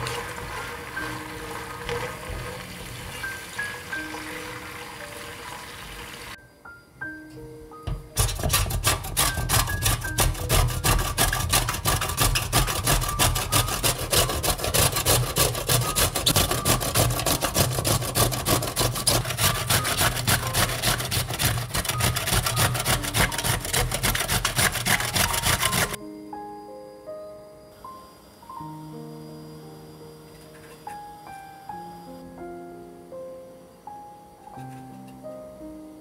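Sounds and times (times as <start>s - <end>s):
pepper rasping on a grater: 8.2s - 26.0s.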